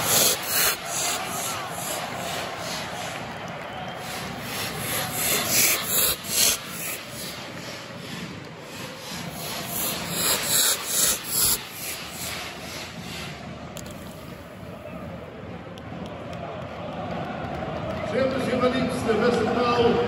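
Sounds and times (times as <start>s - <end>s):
spark fountain hissing bursts: 0.0s - 3.1s, 4.0s - 7.8s, 8.7s - 13.2s
steady rushing hiss: 0.0s - 14.8s.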